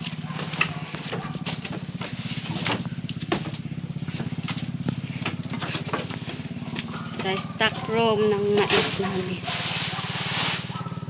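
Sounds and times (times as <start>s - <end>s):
knocks and rustles: 0.0s - 7.6s
small engine running: 0.0s - 11.0s.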